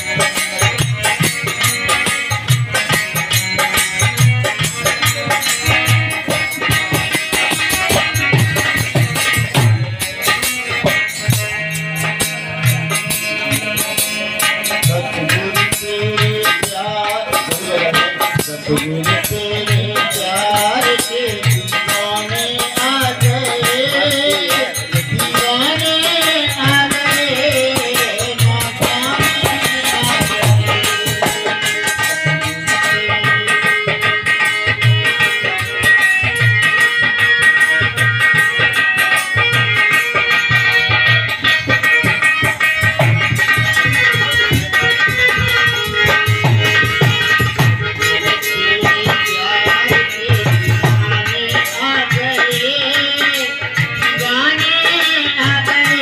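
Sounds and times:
harmonium playing: 0.0 - 56.0
rattling hand percussion: 0.0 - 56.0
man singing: 11.9 - 35.8, 43.2 - 56.0.

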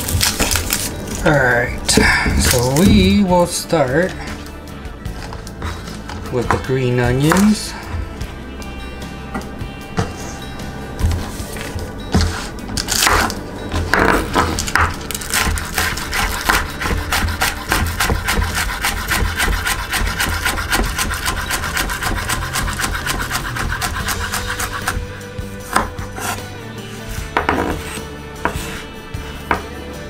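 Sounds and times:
knife chopping on wooden board: 6.5 - 7.6, 12.1 - 26.4, 27.2 - 28.8.

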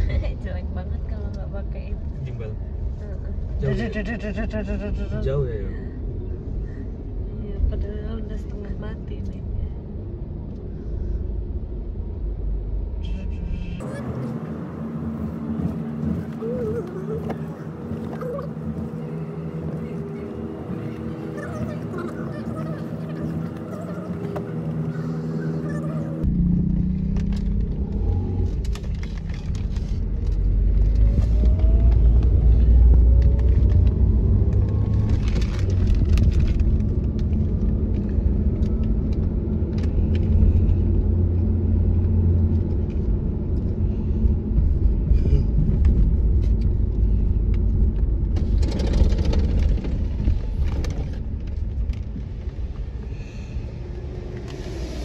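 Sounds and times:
car engine and road rumble: 0.0 - 55.0.

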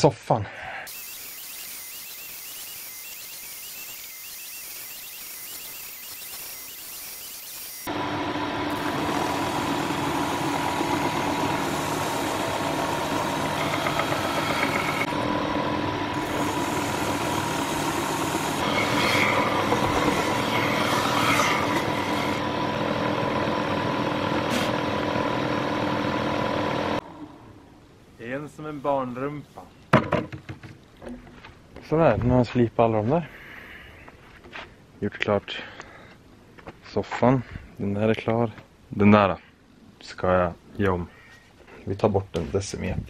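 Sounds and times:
woodworking machine motor hum: 1.0 - 27.4.

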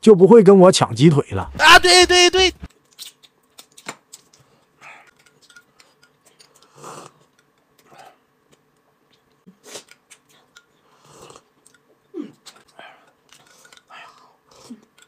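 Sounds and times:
chewing and sipping: 4.4 - 15.0.

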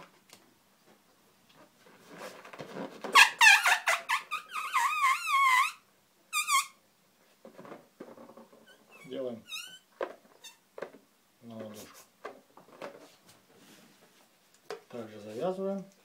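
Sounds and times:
balloons squeaking: 1.9 - 6.8, 8.6 - 11.0.

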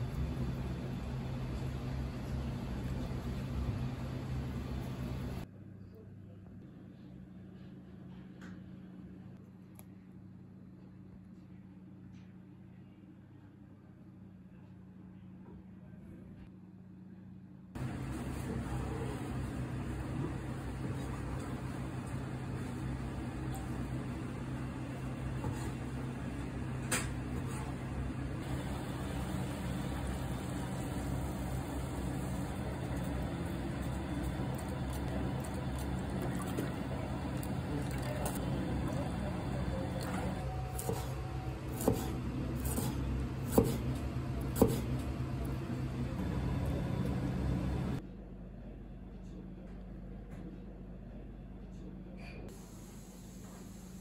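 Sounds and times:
low machine hum: 0.0 - 54.0
knife slicing on cutting board: 41.7 - 43.8.

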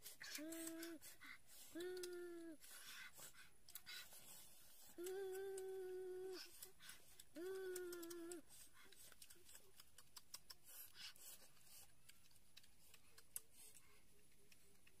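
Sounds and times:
faint clicks: 1.8 - 2.5, 5.0 - 10.6.

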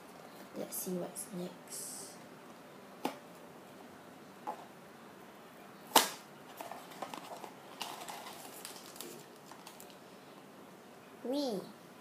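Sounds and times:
small objects clicking and rustling: 6.5 - 10.0.

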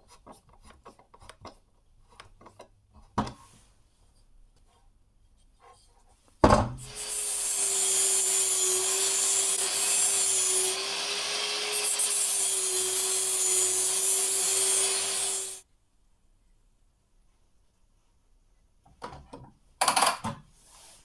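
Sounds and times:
angle grinder cutting metal: 6.8 - 15.6.

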